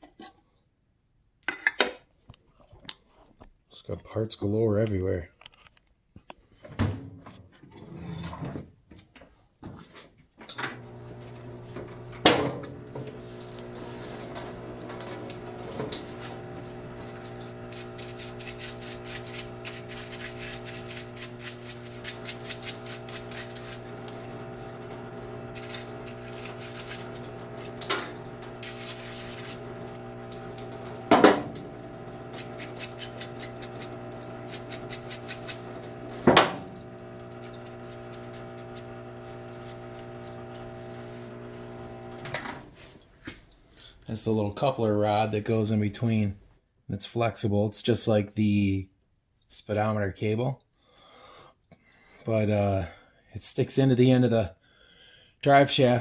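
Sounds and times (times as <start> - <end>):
electric pump humming: 10.6 - 43.0
solvent pouring: 10.8 - 42.9.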